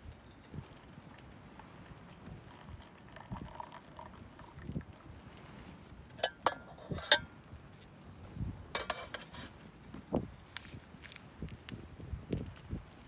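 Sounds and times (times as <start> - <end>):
water pouring into mug: 0.2 - 5.2
metallic kettle clinks: 6.2 - 7.3.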